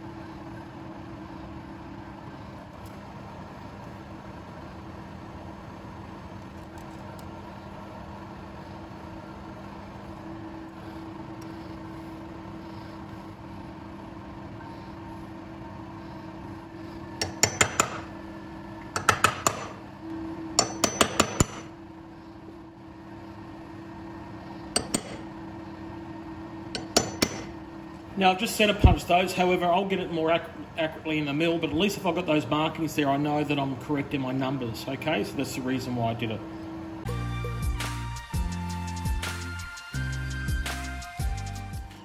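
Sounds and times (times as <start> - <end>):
steady low hum: 0.0 - 42.0
hammer tapping metal punch: 17.2 - 18.2, 18.9 - 19.8, 20.6 - 21.7, 24.7 - 25.3, 26.7 - 27.6.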